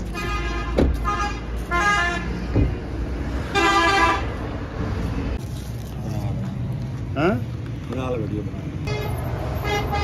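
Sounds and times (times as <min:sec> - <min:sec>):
vehicle horns honking: 0:00.0 - 0:02.4, 0:03.5 - 0:04.4, 0:08.9 - 0:10.0
low rumble of traffic: 0:00.0 - 0:10.0.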